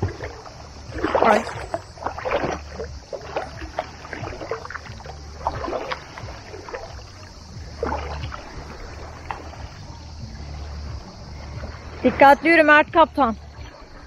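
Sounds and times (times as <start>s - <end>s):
water splashing while wading: 0.0s - 14.0s.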